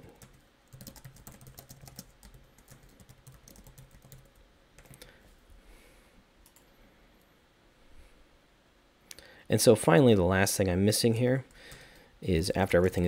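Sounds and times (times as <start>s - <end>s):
computer keyboard typing: 0.0s - 5.1s.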